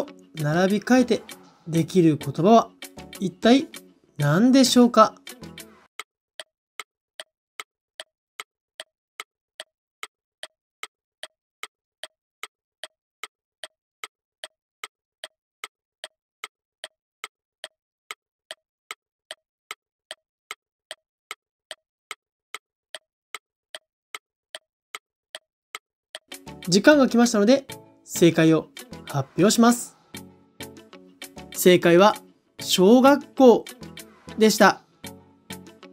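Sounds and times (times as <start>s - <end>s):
clock ticking: 0.0s - 3.8s, 6.0s - 29.8s.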